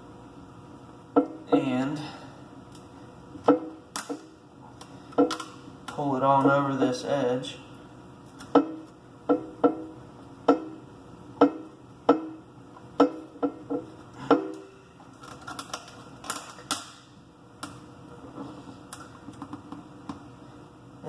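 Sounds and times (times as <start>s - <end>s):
sharp ringing knocks on plastic: 8.5s - 9.9s, 11.4s - 12.4s.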